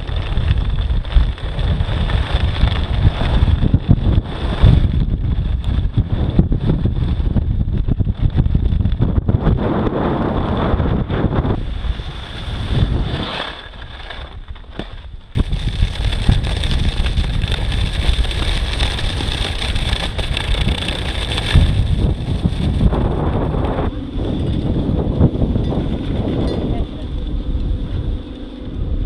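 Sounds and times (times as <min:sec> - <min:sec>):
wind buffeting microphone: 0:00.0 - 0:29.0.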